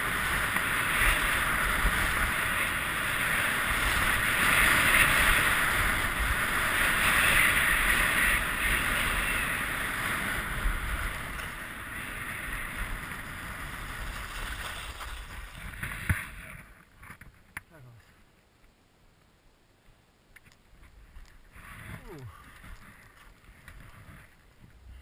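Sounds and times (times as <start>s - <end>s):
skis hissing over snow: 0.0s - 16.7s.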